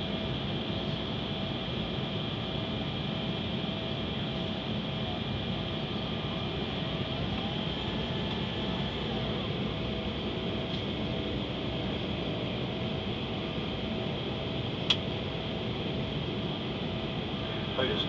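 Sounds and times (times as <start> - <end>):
faint steady whine: 0.0 - 18.0
jet engine and airflow rumble: 0.0 - 18.0.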